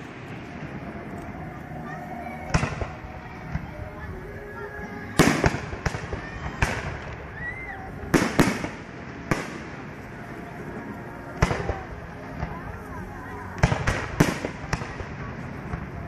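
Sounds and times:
fireworks bangs: 0:00.0 - 0:04.4, 0:05.0 - 0:16.0.

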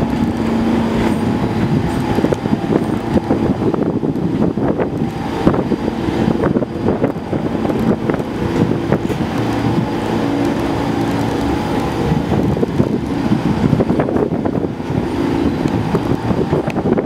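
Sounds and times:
subway train rumbling on rails: 0:00.0 - 0:17.0.

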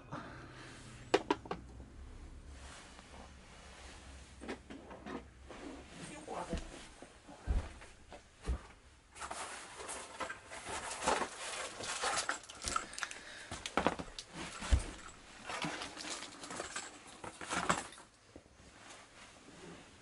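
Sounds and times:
scraping and rustling: 0:02.5 - 0:20.0
small parts clicking and knocking: 0:11.0 - 0:18.2.

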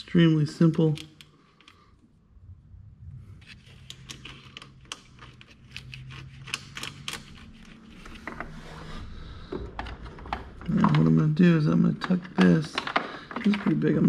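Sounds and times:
faint low hum: 0:00.0 - 0:14.0.

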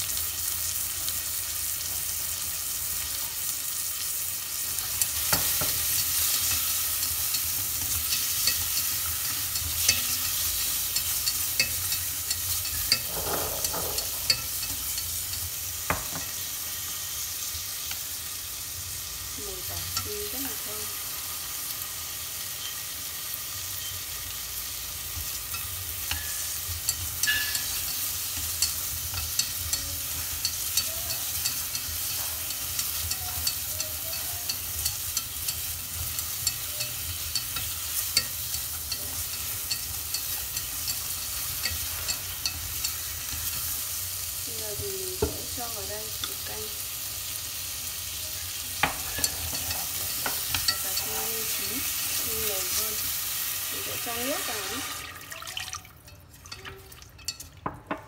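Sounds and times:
tomatoes and garlic sizzling in oil: 0:00.0 - 0:58.0
chopsticks clicking against pot: 0:26.9 - 0:43.6.

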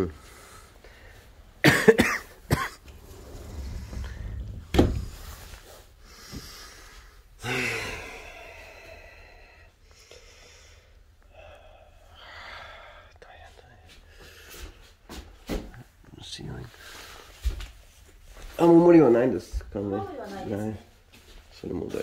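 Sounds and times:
man coughing: 0:01.6 - 0:02.8.

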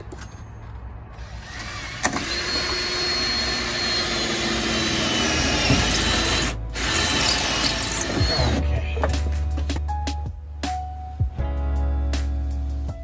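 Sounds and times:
cordless drill boring sheet metal: 0:01.2 - 0:08.6.

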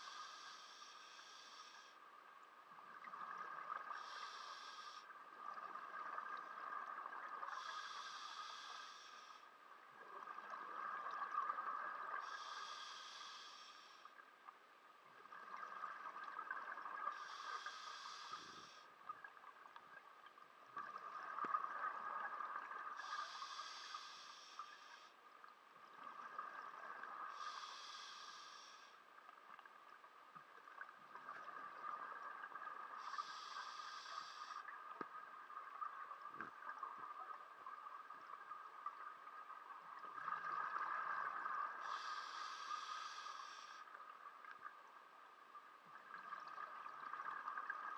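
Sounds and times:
regulator breathing hiss: 0:00.0 - 0:02.0, 0:03.8 - 0:05.1, 0:07.4 - 0:09.5, 0:12.2 - 0:14.1, 0:17.1 - 0:18.9, 0:23.0 - 0:25.1, 0:27.3 - 0:29.0, 0:33.0 - 0:34.7, 0:41.7 - 0:44.0
underwater bubbling: 0:00.0 - 0:47.9.

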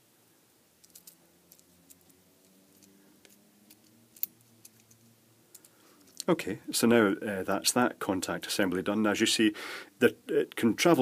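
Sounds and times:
plastic parts clicking together: 0:00.8 - 0:06.3.

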